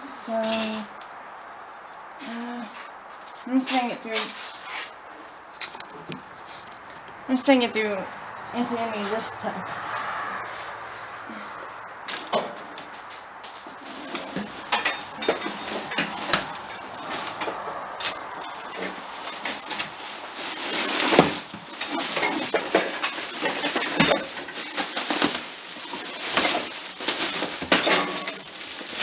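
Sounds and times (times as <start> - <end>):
plastic garbage bag rustling: 13.5 - 29.0
household items clattering: 13.6 - 29.0.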